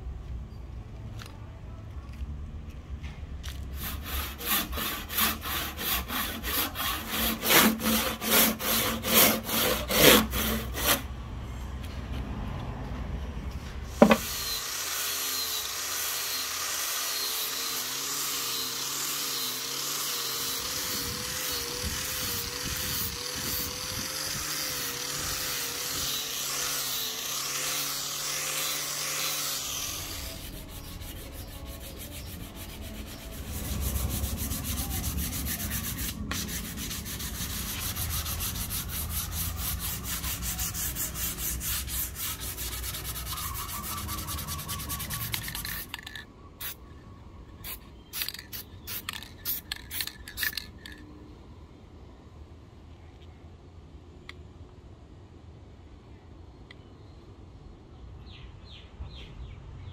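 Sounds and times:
angle grinder whine: 14.0 - 36.1
polishing pad rubbing on wood: 29.6 - 45.9.

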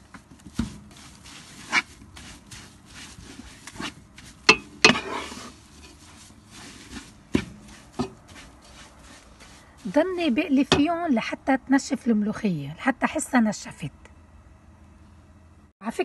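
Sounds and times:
utensil scraping leaves in pan: 0.0 - 11.0.

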